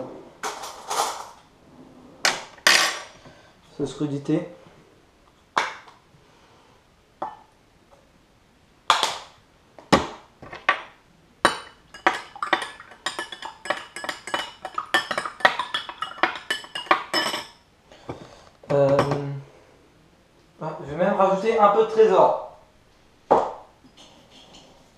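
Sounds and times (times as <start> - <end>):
spoon clinking against glass: 11.5 - 17.6.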